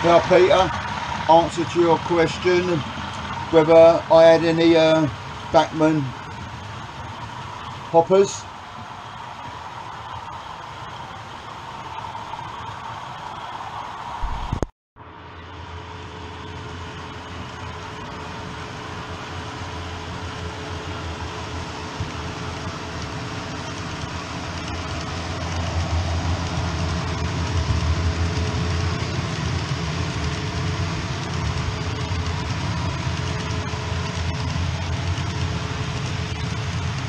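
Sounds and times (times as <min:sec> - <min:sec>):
model train wheels rumbling on rail: 0:00.0 - 0:08.7.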